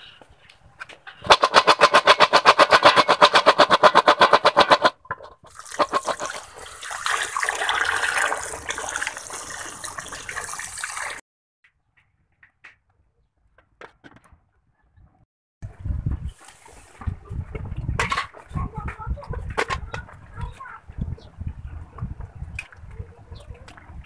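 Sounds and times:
pork rinds rattling in metal bowl: 1.2 - 9.7
water churning and splashing: 1.3 - 11.2.

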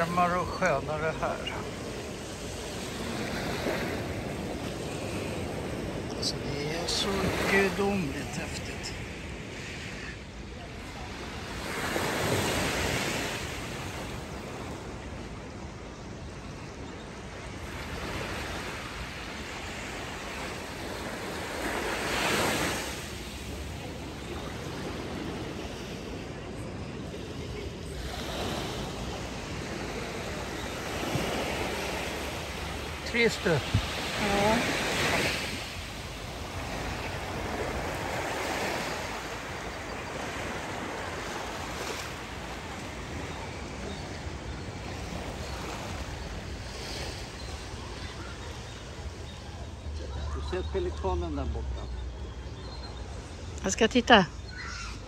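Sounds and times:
surf washing onto beach: 0.0 - 10.1
sea waves breaking on beach: 0.0 - 50.5.

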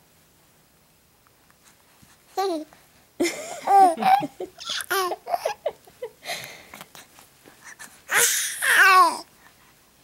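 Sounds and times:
baby chuckling: 3.2 - 6.3
baby cooing and babbling: 4.6 - 5.6, 8.1 - 9.3.

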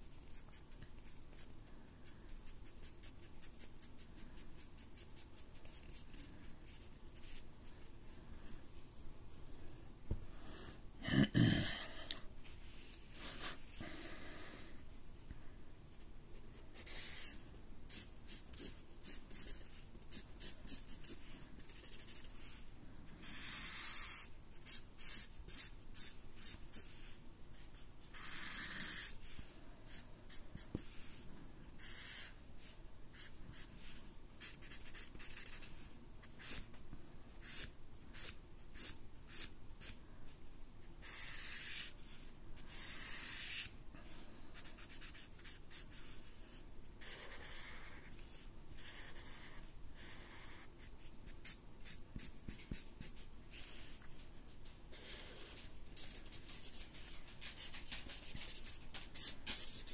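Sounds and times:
marker scratching on paper: 2.4 - 7.8, 16.7 - 31.2, 31.8 - 36.7, 37.4 - 40.0, 41.0 - 42.0, 42.6 - 43.7, 44.6 - 54.1, 55.0 - 59.9.

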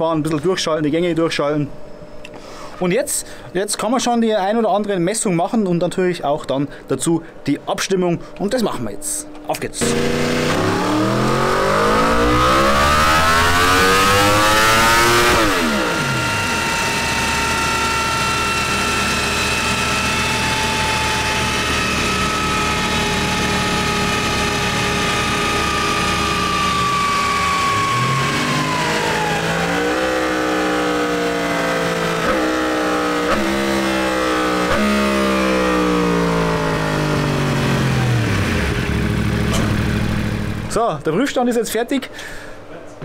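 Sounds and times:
steady whine sinking in pitch: 8.4 - 40.8
motorcycle engine revving: 9.8 - 40.8.

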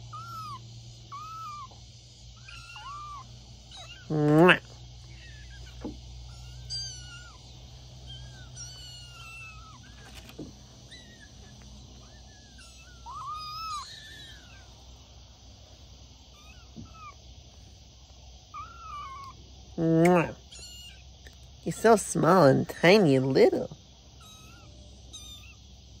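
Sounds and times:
kitten mewing: 0.0 - 1.8, 2.4 - 14.7, 16.3 - 17.2, 18.6 - 21.0.

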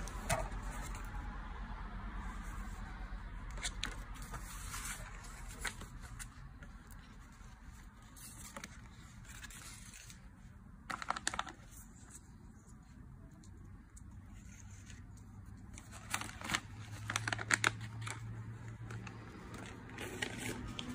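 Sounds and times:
paper and cardboard rustling: 3.5 - 13.0, 14.2 - 20.9.

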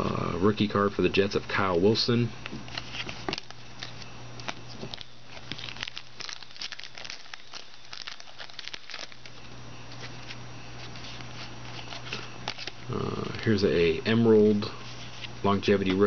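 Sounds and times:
cards rustling: 2.5 - 13.5, 14.8 - 16.0
foil wrapper crinkling and tearing: 2.7 - 12.9.

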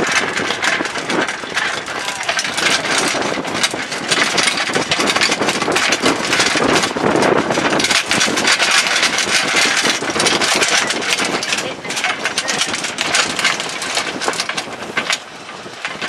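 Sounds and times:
boat engine running: 0.0 - 16.0.

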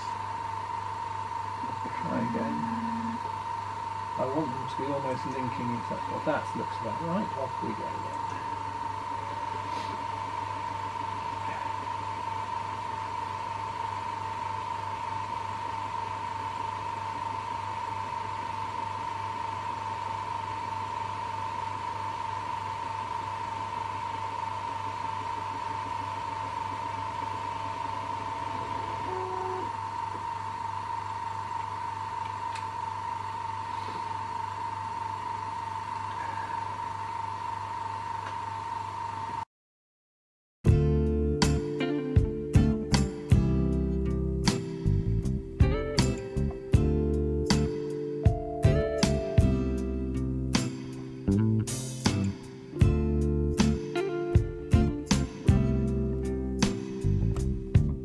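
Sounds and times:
low mains hum: 0.0 - 39.4, 40.7 - 58.0
laser engraver high-pitched tone: 1.6 - 3.4, 27.6 - 31.1, 35.2 - 37.3
air assist blowing: 9.5 - 10.2.

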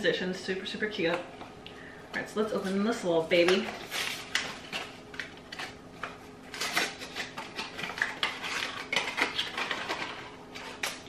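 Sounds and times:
packaging crinkling and tearing: 3.7 - 11.0.

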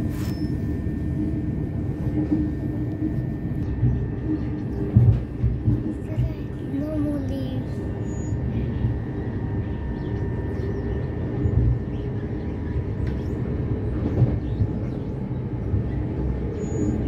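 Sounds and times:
faint train whine: 0.0 - 17.0
train wheels rumbling on rails: 0.0 - 17.0
train knocks: 3.7 - 7.0.

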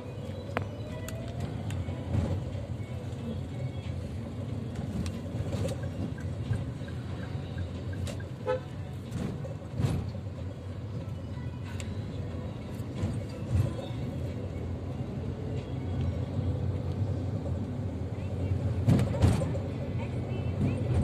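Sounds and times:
car engine and road rumble: 0.0 - 21.0
car horn toot: 8.4 - 8.8.

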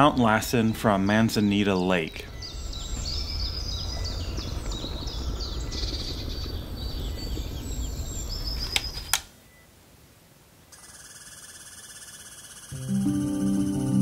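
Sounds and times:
low outdoor rumble: 0.0 - 9.0
small birds chirping: 0.0 - 9.7
sharp clicks: 8.6 - 9.3.

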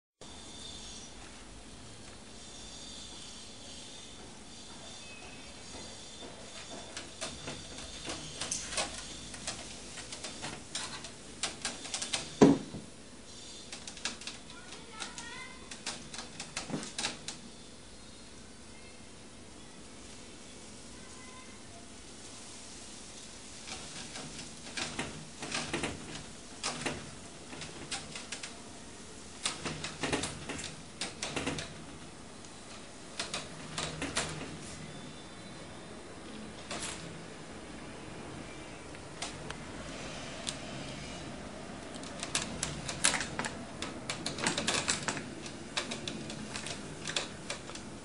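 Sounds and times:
cat claws scratching window screen: 42.0 - 48.0.

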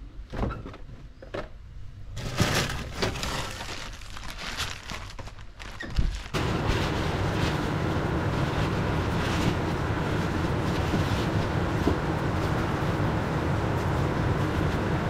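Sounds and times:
crinkling and knocking: 2.2 - 12.6
steady rushing noise: 6.4 - 15.0.

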